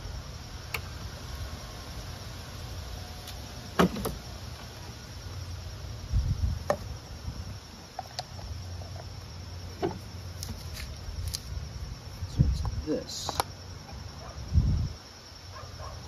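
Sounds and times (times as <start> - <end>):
insects buzzing: 0.0 - 16.0
low scuff on asphalt: 10.4 - 11.5.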